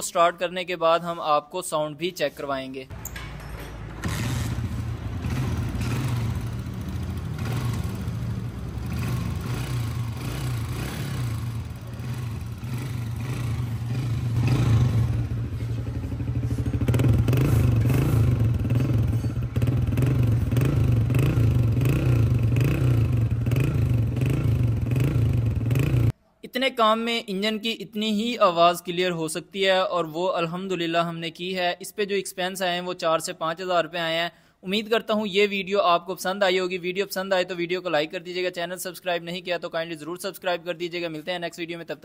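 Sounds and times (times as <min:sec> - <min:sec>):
motorcycle engine running: 0:04.0 - 0:26.1.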